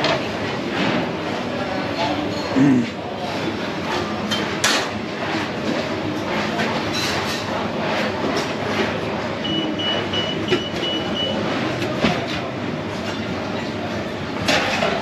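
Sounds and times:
kitchen noise: 0.0s - 15.0s
pans and lids clattering: 14.4s - 15.0s.

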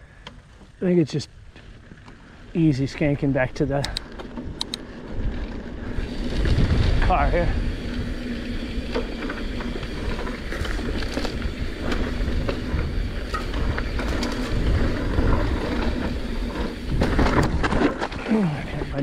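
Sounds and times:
wind: 0.0s - 19.0s
bike tyre rumble on dirt: 0.4s - 19.0s
bike clicks and rattles: 1.4s - 19.0s.

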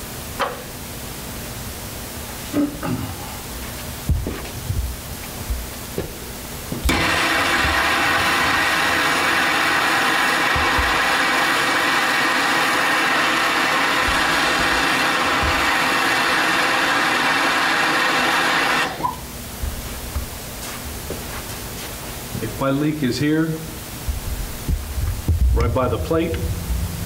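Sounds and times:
torch flame hissing: 6.1s - 19.1s.

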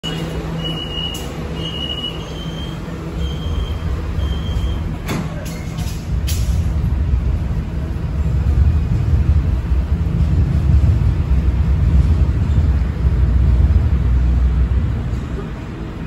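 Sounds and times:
train doors shutting with a knock: 0.0s - 6.8s
low rumble of train: 0.0s - 16.0s
door-closing warning beeps: 0.1s - 5.8s.

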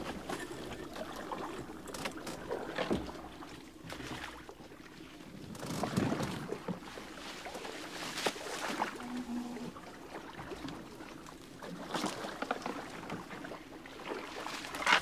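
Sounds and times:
paddle strokes in water: 0.0s - 15.0s
branches scraping against boat: 5.4s - 9.7s, 14.4s - 15.0s.

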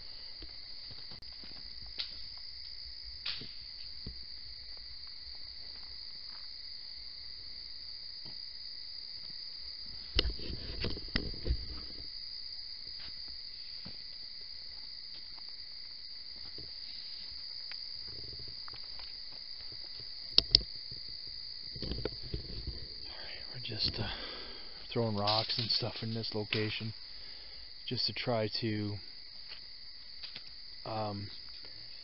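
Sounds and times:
insects chirping: 0.0s - 32.0s.

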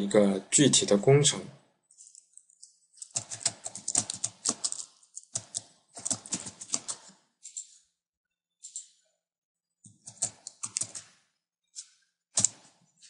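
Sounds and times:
computer keyboard typing: 2.0s - 7.8s, 9.9s - 11.2s, 12.4s - 12.8s.

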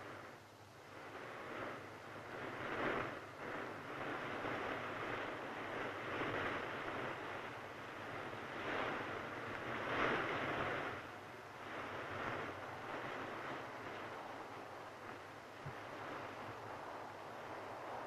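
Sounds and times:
wind rustling through foliage: 0.0s - 18.0s.

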